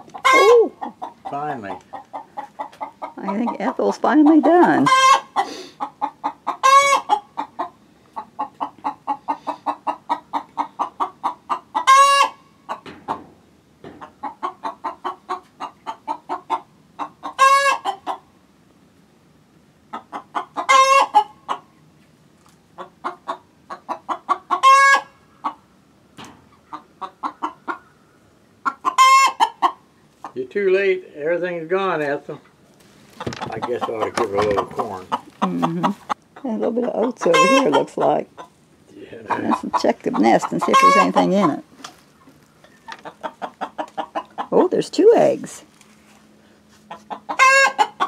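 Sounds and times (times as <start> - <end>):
hen cackling: 0.0 - 13.2, 14.0 - 18.3, 19.9 - 21.7, 22.7 - 25.7, 26.5 - 30.4, 33.2 - 44.8, 46.9 - 48.0.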